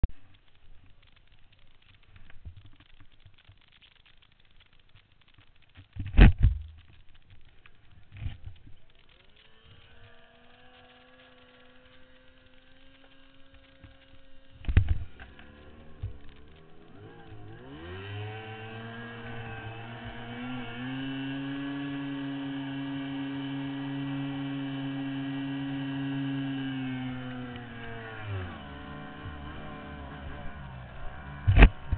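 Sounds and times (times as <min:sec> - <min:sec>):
outboard motor running: 0:08.0 - 0:31.9.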